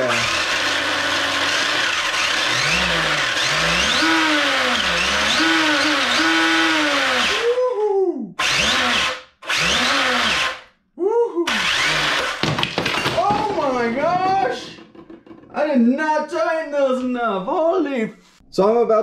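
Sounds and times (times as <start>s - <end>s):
electric motor whine: 0.0s - 7.4s.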